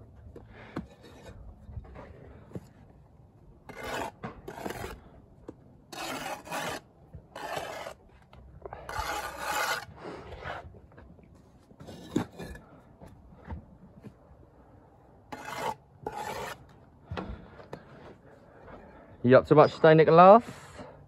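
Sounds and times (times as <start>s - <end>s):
trowel scraping mortar and brick: 0.8s - 1.4s, 3.7s - 5.1s, 5.9s - 8.1s, 8.7s - 10.7s, 11.8s - 12.7s, 15.3s - 16.8s.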